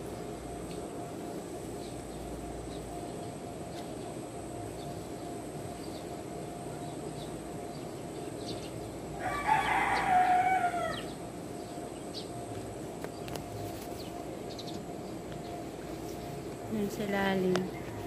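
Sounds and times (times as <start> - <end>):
rooster crowing: 9.2 - 11.2, 17.7 - 18.0.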